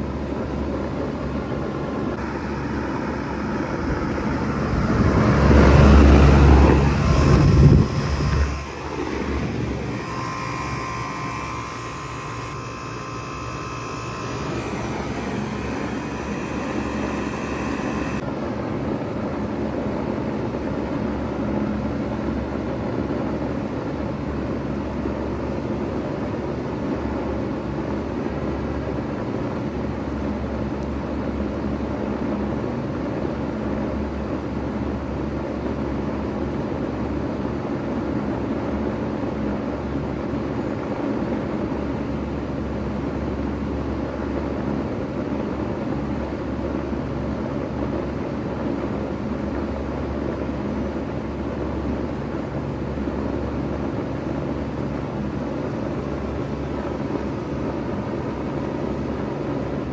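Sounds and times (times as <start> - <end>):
compressor hum: 0.0 - 19.6
condenser fan air rush: 0.0 - 59.9
high whine: 1.1 - 18.5.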